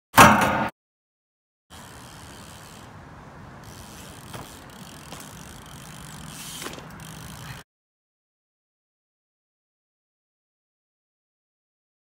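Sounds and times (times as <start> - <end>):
bike clicks and knocks: 1.7 - 7.6
bike tyres rolling on asphalt: 1.7 - 7.6.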